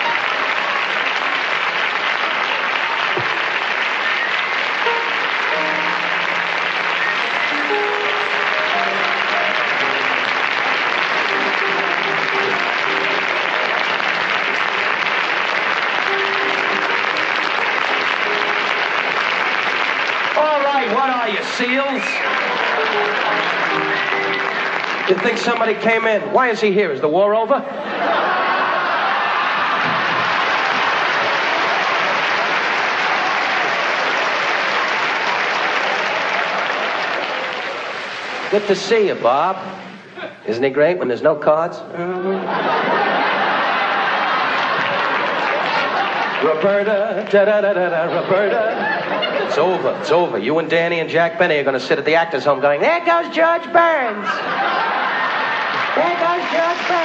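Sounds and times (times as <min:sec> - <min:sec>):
audience applauding: 0:00.0 - 0:26.8, 0:27.9 - 0:40.3, 0:42.5 - 0:57.0.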